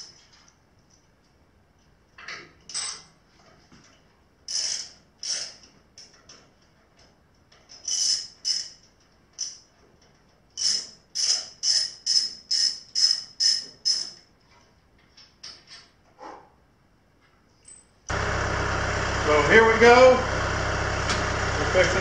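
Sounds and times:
ratchet wrench clicking: 9.4s - 9.6s
tractor engine idling: 18.1s - 22.0s.

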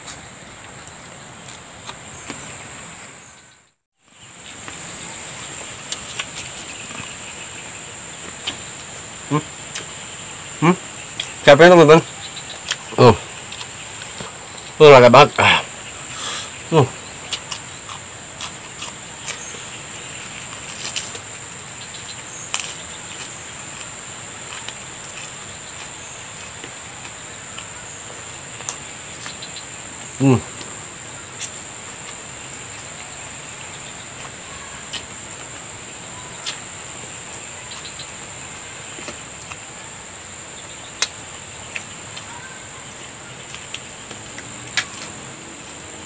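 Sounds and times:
insects chirping: 0.0s - 46.0s
eating with fingers: 5.4s - 7.2s, 8.2s - 11.4s, 12.2s - 14.8s, 16.1s - 39.7s.

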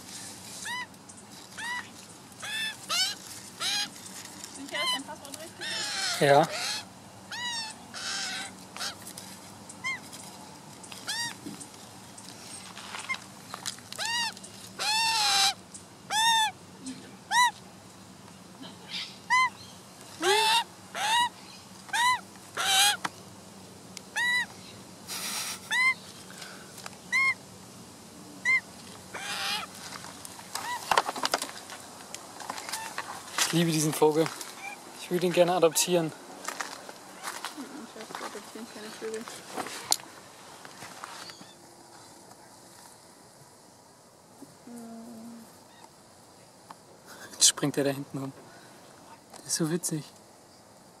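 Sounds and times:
magpie squawking: 1.6s - 3.9s, 4.7s - 9.0s, 11.1s - 11.4s, 14.0s - 16.6s, 17.3s - 17.5s, 20.2s - 23.0s, 24.2s - 24.5s, 27.1s - 27.4s, 28.4s - 29.7s.

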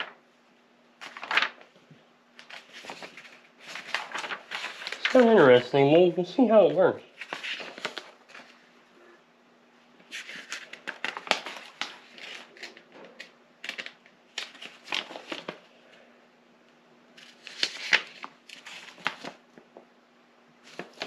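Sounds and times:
paper rustling and crinkling: 1.0s - 5.9s, 6.8s - 8.6s, 10.1s - 15.7s, 17.2s - 19.4s, 20.6s - 21.0s.

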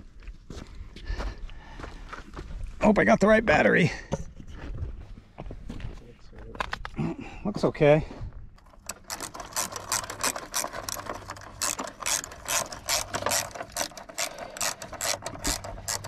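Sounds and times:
ratchet wrench clicking: 8.6s - 16.0s.

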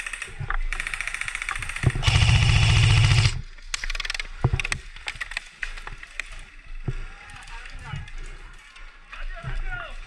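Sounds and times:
sharp clicks and snaps: 0.0s - 6.3s
airsoft gun firing full auto: 1.8s - 3.4s.

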